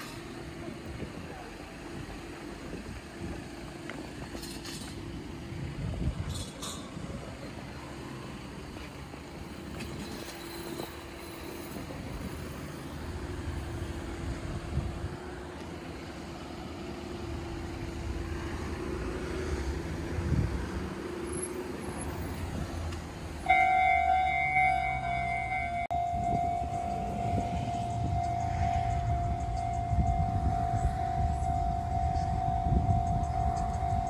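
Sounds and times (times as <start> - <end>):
road traffic passing: 0.0 - 34.0
level crossing warning bell: 23.4 - 34.0.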